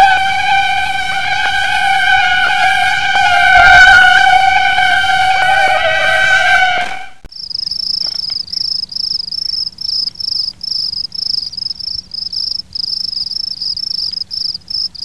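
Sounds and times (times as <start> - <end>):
cricket chirping: 7.3 - 15.0.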